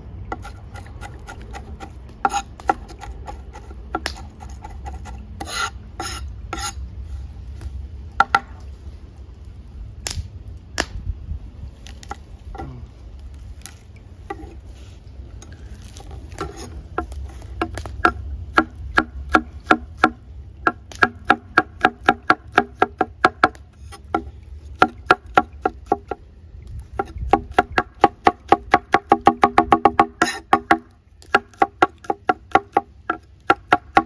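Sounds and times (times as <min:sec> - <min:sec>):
knife chopping on wooden board: 0:16.4 - 0:26.2, 0:27.0 - 0:34.0.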